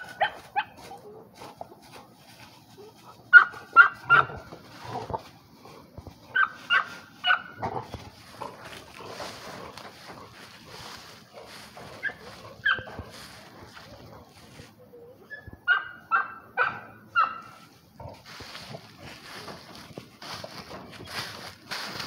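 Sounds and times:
dog yipping: 0.0s - 0.8s, 3.3s - 4.3s, 6.3s - 7.5s, 12.0s - 12.9s, 15.3s - 17.5s
dry leaves rustling: 0.0s - 15.4s, 17.1s - 22.0s.

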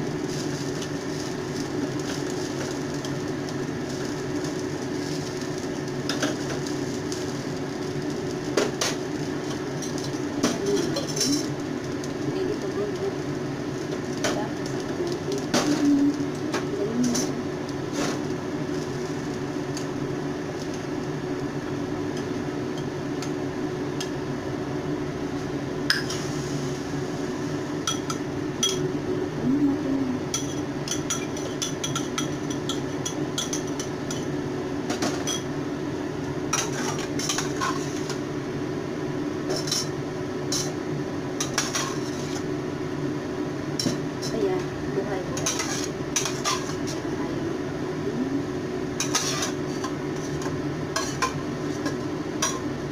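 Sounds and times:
steady hum and hiss: 0.0s - 52.9s
utensils scraping frying pan: 36.5s - 38.2s, 39.5s - 39.9s, 41.4s - 42.5s, 45.4s - 47.0s, 49.0s - 52.6s.

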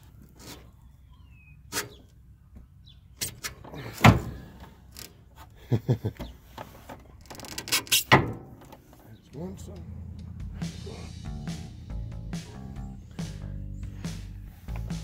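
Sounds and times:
metal clunks and knocks: 3.2s - 5.1s, 6.1s - 9.0s.

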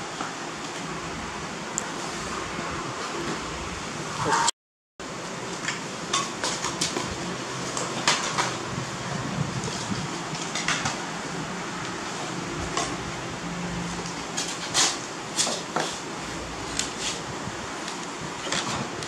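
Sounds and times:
room fan hissing: 0.0s - 19.0s.

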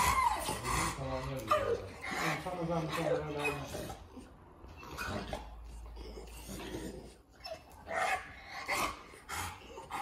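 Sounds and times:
dog breathing noisily: 8.3s - 10.0s.

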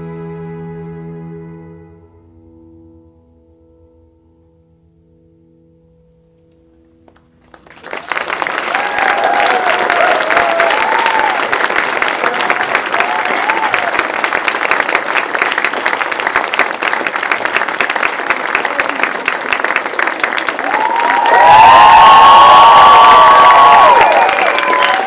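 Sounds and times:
audience applause: 7.4s - 25.0s
whoops and cheers: 7.9s - 14.1s, 20.5s - 25.0s.

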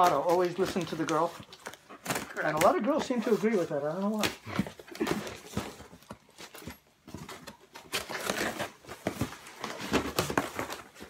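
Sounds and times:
cardboard flaps rustling: 0.0s - 11.0s
scissors cutting packing tape: 7.5s - 8.8s.

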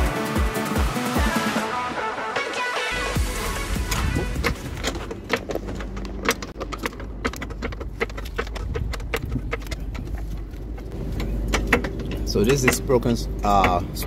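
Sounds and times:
low hum: 3.0s - 14.0s
floor jack metallic clicks: 3.9s - 14.0s.

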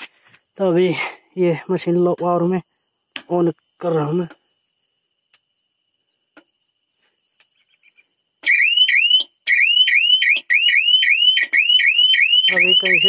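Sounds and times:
electronic siren chirping: 8.4s - 13.0s.

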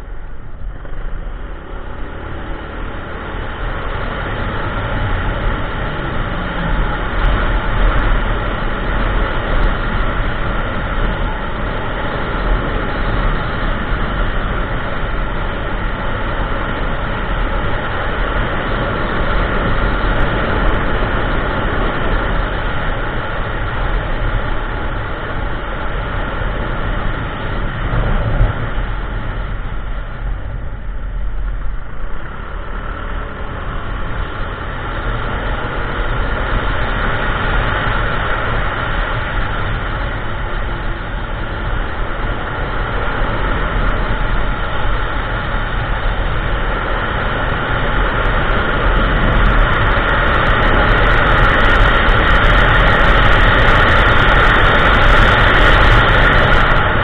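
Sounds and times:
scooter engine running: 0.0s - 57.0s
wind rushing over microphone: 0.0s - 57.0s.

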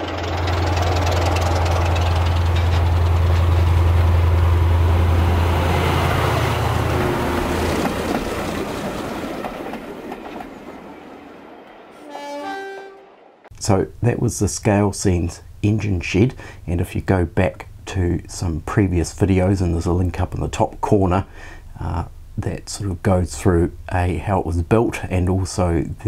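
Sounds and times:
low hum: 0.0s - 8.8s
model train clattering past: 0.0s - 11.1s.

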